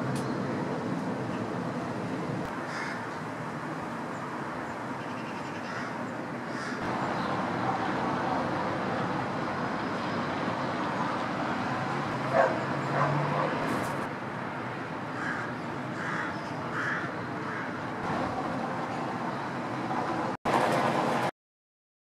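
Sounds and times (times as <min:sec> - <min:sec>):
distant traffic hum: 0:00.0 - 0:21.3
distant animal calls: 0:05.0 - 0:06.9.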